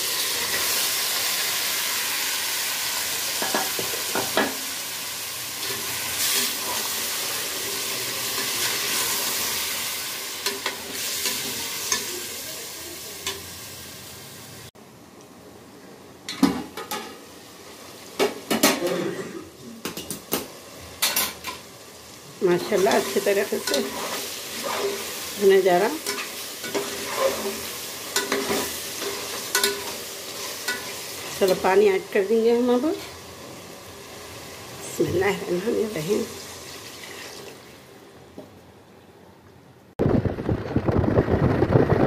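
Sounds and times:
meat and tomatoes sizzling in oil: 0.0s - 14.7s, 20.2s - 38.1s
metal pot lid clanks and scrapes: 22.8s - 25.1s, 26.0s - 30.0s.

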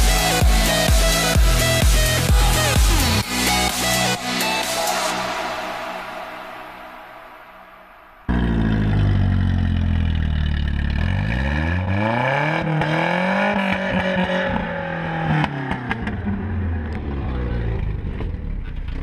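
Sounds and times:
pickup truck engine revving: 8.3s - 19.0s.

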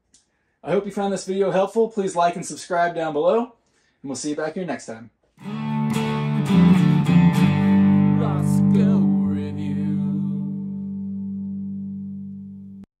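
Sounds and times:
held music chord ringing: 5.4s - 12.8s.

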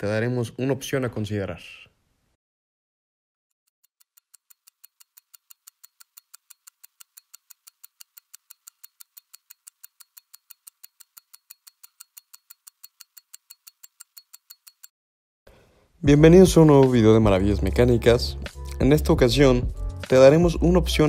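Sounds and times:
mechanical watch ticking: 3.8s - 14.9s.

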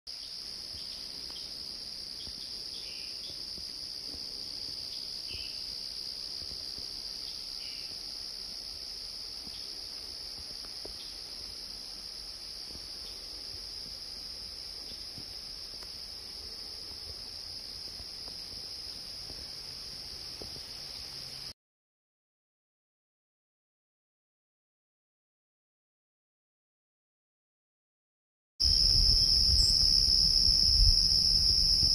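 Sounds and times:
high-pitched insect chorus: 0.1s - 21.6s, 28.6s - 31.9s.

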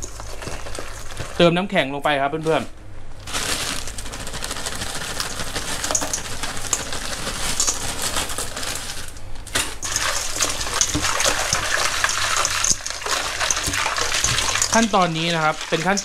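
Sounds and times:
ice cubes clattering into steel bowl: 0.0s - 1.5s, 3.2s - 16.0s
ice clinking against bowl: 9.8s - 16.0s.

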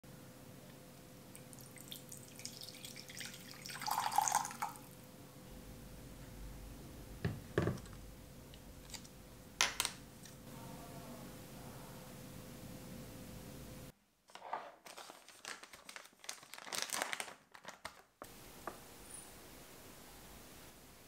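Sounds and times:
water pouring into glass cup: 1.4s - 4.9s.

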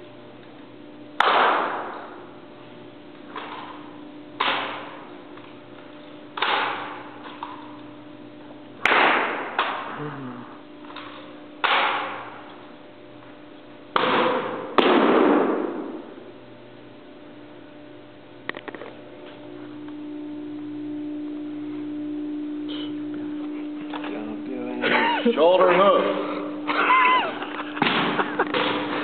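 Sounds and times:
rifle smacks echoing in hall: 1.2s - 2.2s, 4.4s - 5.0s, 6.4s - 7.0s, 8.8s - 10.0s, 11.0s - 12.4s, 13.9s - 16.1s, 27.8s - 28.9s.

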